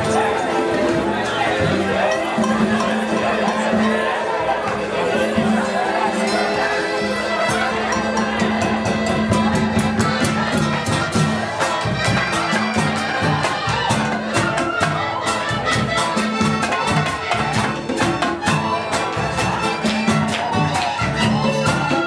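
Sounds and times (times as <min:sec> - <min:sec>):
band holding notes: 0:00.0 - 0:22.0
congas: 0:00.0 - 0:22.0
flute playing melody: 0:00.0 - 0:22.0
large barrel drums: 0:00.0 - 0:22.0
drum kit: 0:07.8 - 0:22.0.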